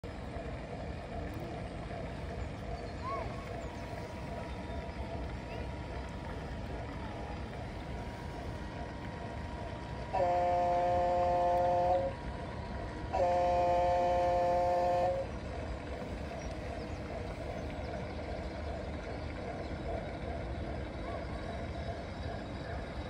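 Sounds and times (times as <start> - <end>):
model boat horn blasts: 10.1 - 12.2, 13.1 - 15.3.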